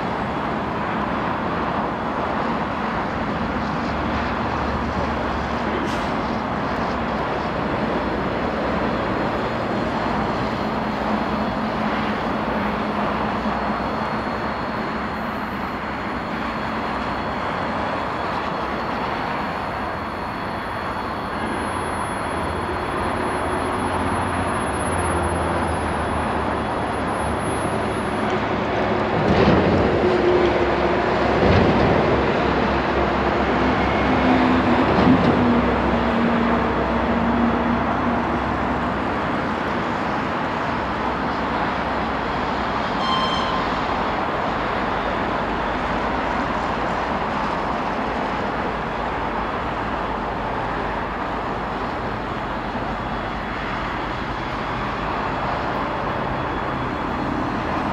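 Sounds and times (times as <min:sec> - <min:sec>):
train rumble: 0:00.0 - 0:57.9
train knocks: 0:28.1 - 0:36.4, 0:42.8 - 0:44.3.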